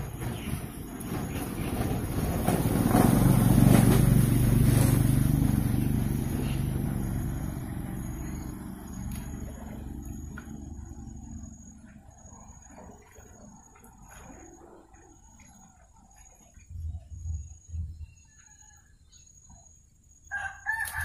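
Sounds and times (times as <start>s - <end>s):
motor engine passing by: 0.2s - 16.3s.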